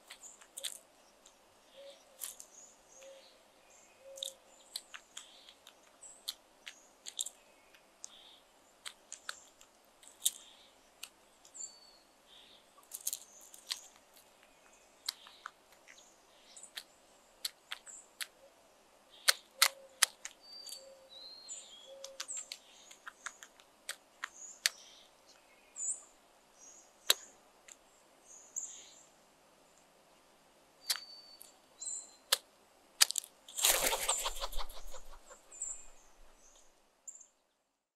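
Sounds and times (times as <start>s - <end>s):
crow beak pecking on gravel: 0.0s - 3.2s, 4.0s - 11.6s, 12.8s - 18.4s, 19.1s - 21.0s, 21.9s - 25.0s, 32.3s - 36.7s
small birds chirping: 0.0s - 37.8s.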